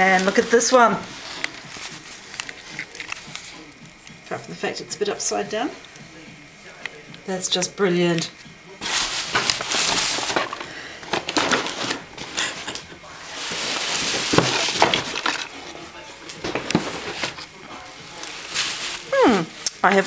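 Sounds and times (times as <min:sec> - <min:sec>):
plastic and cardboard rustling: 0:00.0 - 0:03.9, 0:08.8 - 0:20.0.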